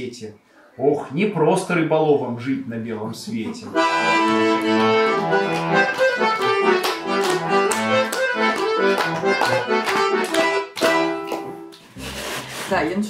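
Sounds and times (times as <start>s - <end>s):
accordion playing: 3.7s - 12.8s.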